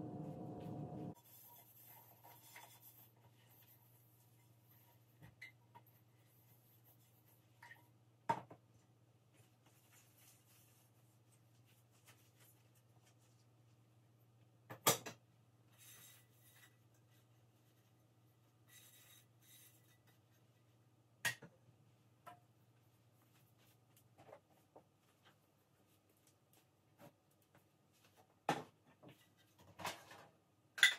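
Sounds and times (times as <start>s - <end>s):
low hum: 0.0s - 1.2s.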